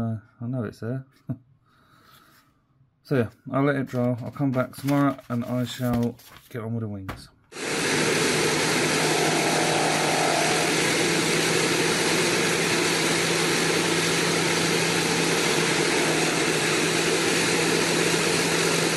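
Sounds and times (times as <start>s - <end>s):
engine running steadily: 7.6s - 18.9s
rushing noise: 7.6s - 18.9s.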